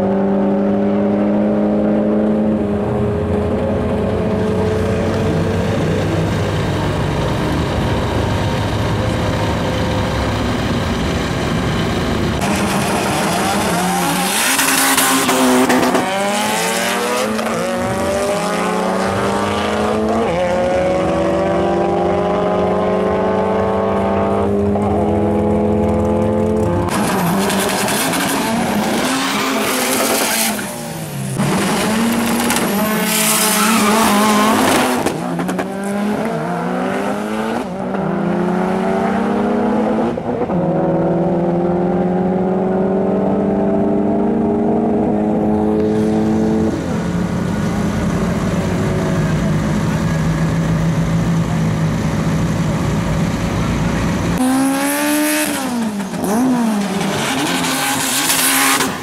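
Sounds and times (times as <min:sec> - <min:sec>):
car engine at full throttle: 0:00.0 - 0:59.0
tyre squeal: 0:31.7 - 0:34.4.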